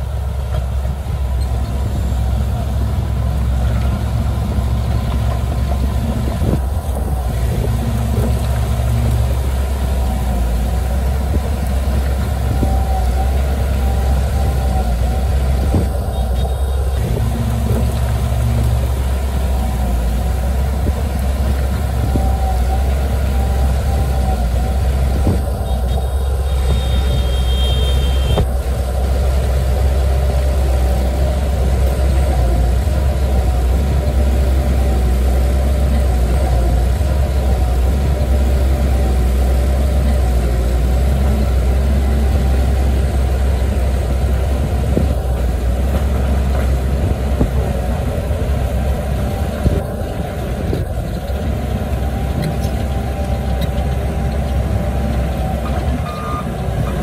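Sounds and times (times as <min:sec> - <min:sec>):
diesel engine rumbling: 0:00.0 - 0:57.0.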